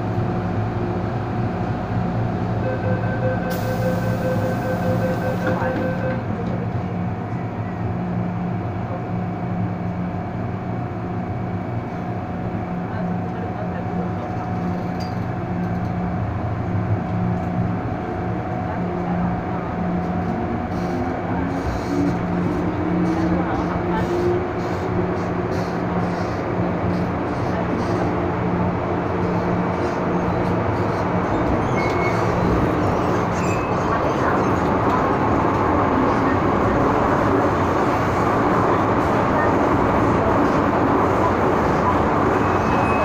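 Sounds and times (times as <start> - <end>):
electric train interior hum: 0.0 - 43.0
brief high squeaks: 31.6 - 32.3, 33.0 - 33.8, 42.4 - 43.0.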